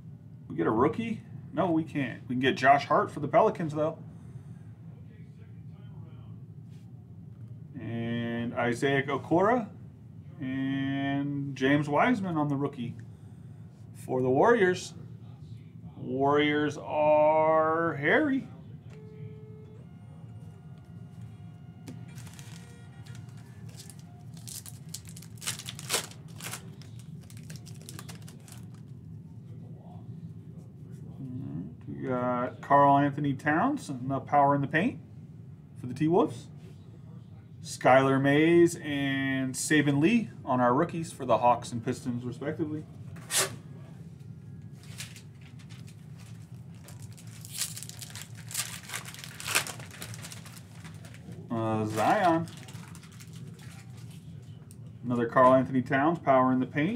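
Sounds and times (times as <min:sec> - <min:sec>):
steady low hum: 0:00.0 - 0:56.9
foil wrapper tearing and crinkling: 0:22.1 - 0:28.8, 0:44.8 - 0:54.1.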